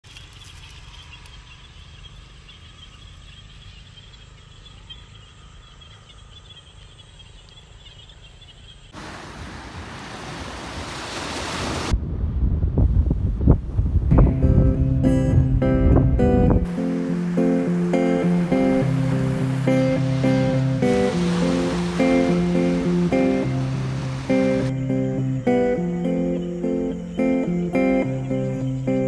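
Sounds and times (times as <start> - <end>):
faint high chirring: 0.1 - 9.0
wind rumbling on microphone: 9.0 - 24.7
loud rushing hiss: 16.7 - 24.7.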